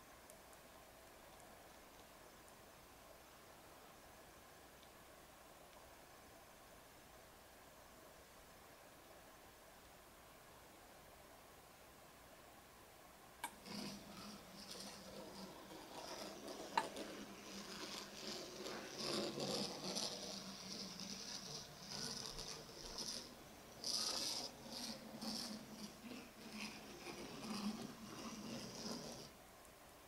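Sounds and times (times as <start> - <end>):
model car motors humming: 13.4 - 29.3.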